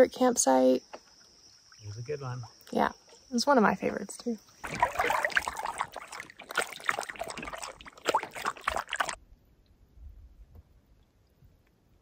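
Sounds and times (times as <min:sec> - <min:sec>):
water splashing around paddle: 0:04.6 - 0:09.2.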